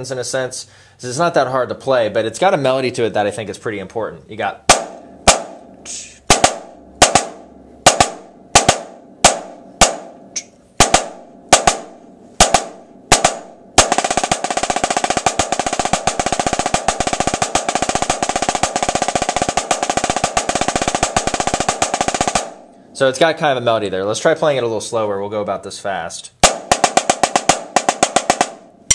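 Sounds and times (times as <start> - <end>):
snare drum strokes: 4.7 - 22.6, 26.4 - 28.9.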